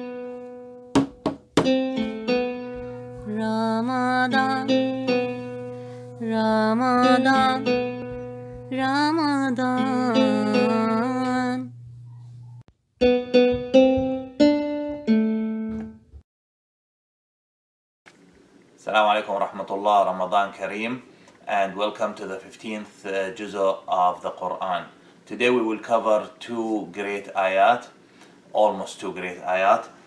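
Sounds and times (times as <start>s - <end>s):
melody of short pitched notes: 1.6s - 3.1s, 13.0s - 16.1s.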